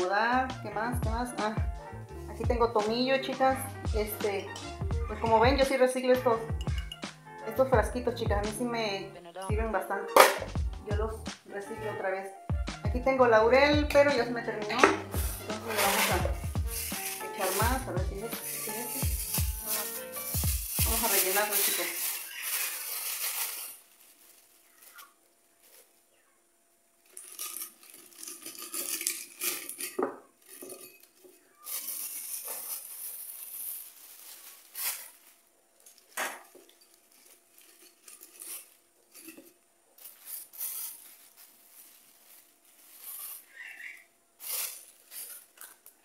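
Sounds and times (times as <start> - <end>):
clinks against glass jar: 6.6 - 7.0, 27.3 - 32.8
leaves and plastic bag rustling: 14.4 - 26.3, 27.0 - 46.0.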